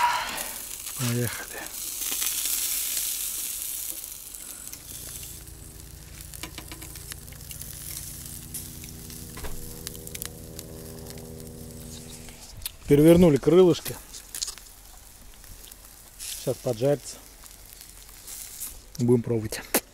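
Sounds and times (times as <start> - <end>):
chicken wings sizzling over charcoal: 0.0 - 19.9
steady low hum: 3.9 - 16.2
tongs clicking on grill grate: 6.2 - 9.2.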